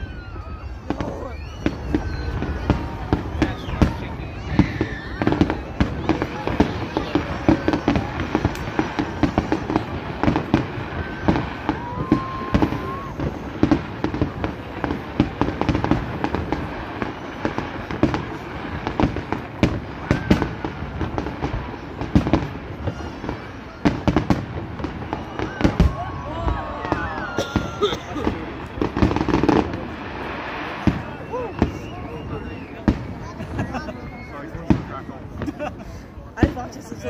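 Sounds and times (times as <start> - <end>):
whistle-like tone: 0.0 - 4.1, 30.9 - 33.0
fireworks bangs and crackles: 0.0 - 37.0.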